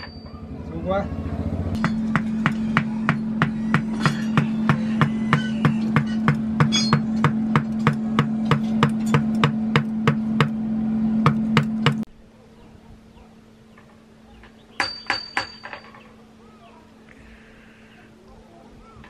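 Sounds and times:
low hum: 0.0s - 12.9s
hammer blows on metal: 1.8s - 10.6s.

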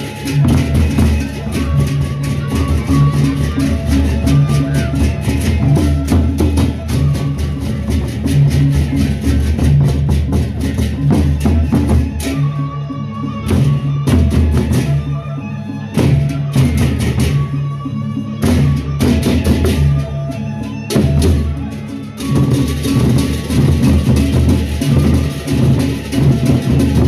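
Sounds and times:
barrel drums beaten fast: 22.2s - 27.0s.

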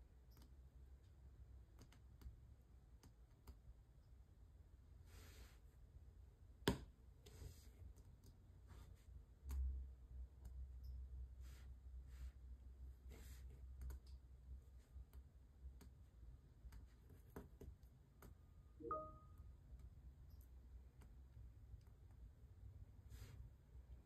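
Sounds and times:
brief pitched ding: 18.8s - 19.3s.

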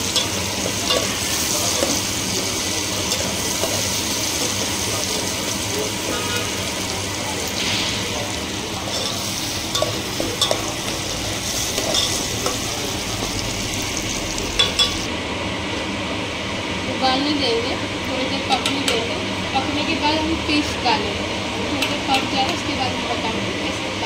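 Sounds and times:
onion and tomato sizzling in oil: 0.0s - 15.1s.

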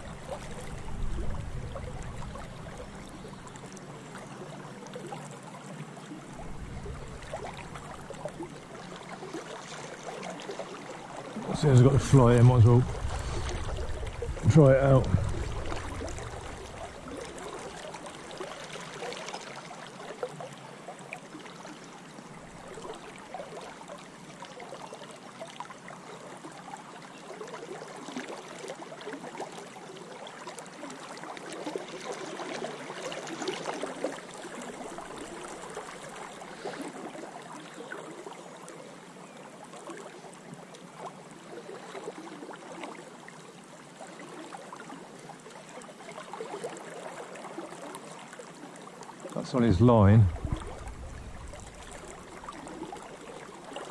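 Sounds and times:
river water rushing: 0.0s - 4.5s, 6.2s - 20.1s, 49.3s - 53.9s.

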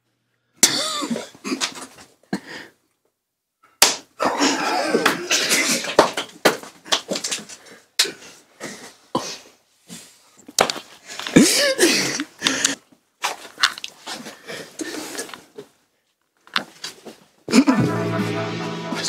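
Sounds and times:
stifled laughter: 4.2s - 6.0s.

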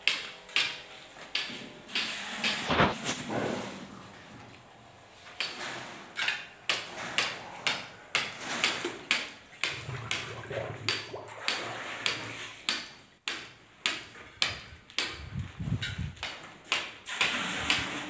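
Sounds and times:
hammering: 5.4s - 18.0s.

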